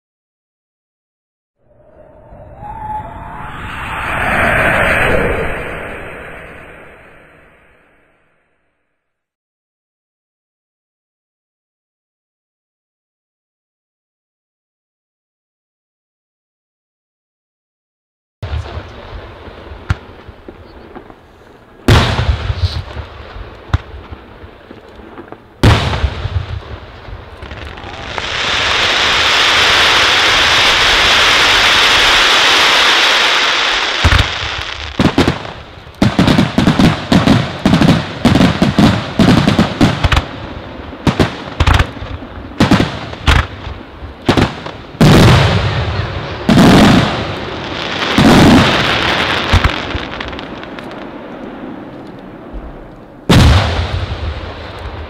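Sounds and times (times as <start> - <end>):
firework bangs: 18.5 - 55.0
deep firework booms: 21.8 - 32.8, 33.8 - 55.0
firework hissing: 27.5 - 35.0.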